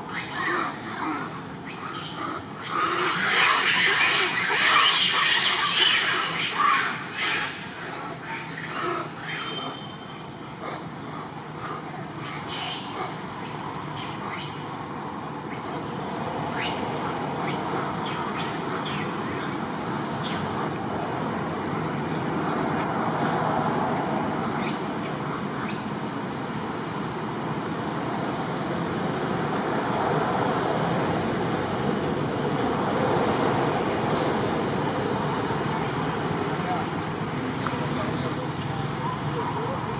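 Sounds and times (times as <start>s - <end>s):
steady rushing background noise: 0.0s - 39.9s
high thin whistled calls: 8.2s - 10.3s, 12.2s - 14.9s, 15.5s - 20.6s, 24.6s - 26.1s.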